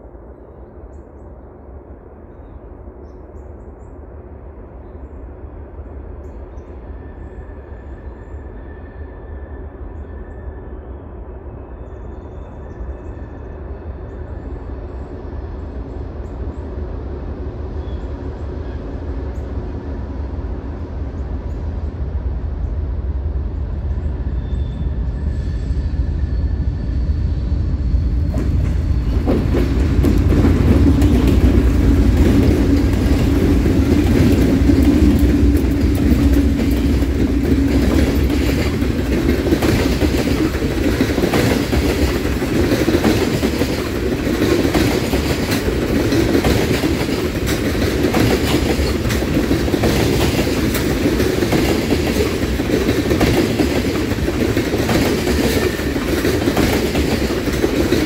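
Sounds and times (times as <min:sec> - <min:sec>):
diesel locomotive engines: 0:00.0 - 0:58.0
wheels clicking over rail joints: 0:28.3 - 0:58.0.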